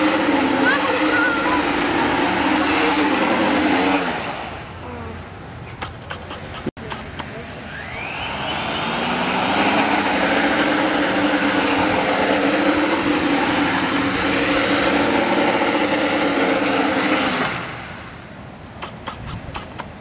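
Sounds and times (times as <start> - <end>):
drone motors buzzing whine: 0.0 - 20.0.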